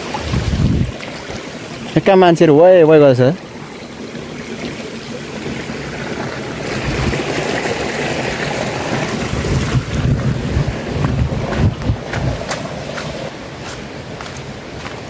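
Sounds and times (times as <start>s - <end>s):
wind buffeting microphone: 0.0s - 1.9s, 5.4s - 13.3s.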